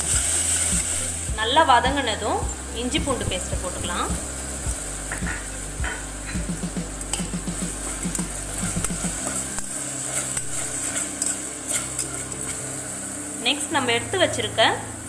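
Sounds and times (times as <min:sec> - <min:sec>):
food sizzling in oil: 0:00.0 - 0:15.0
spoon scraping a pan: 0:07.1 - 0:12.8.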